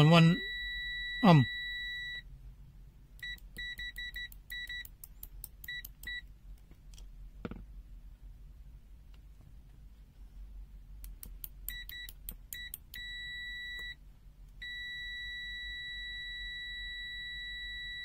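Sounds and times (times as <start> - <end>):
multimeter continuity beep: 0.0 - 2.2, 3.2 - 6.3, 11.7 - 14.0, 14.6 - 18.0.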